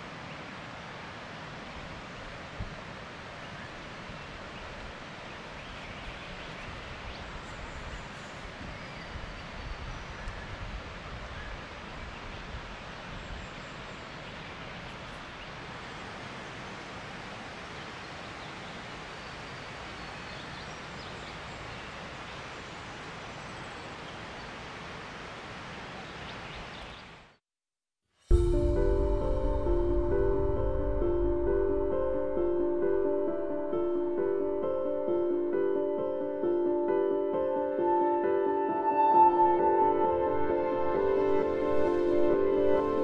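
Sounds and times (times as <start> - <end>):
rushing noise with low rumble: 28.3 - 33.5.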